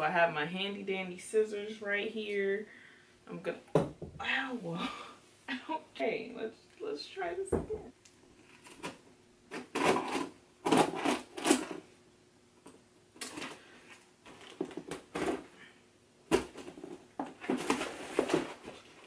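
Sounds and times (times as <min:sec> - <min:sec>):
scissors cutting packing tape: 0:08.7 - 0:11.8.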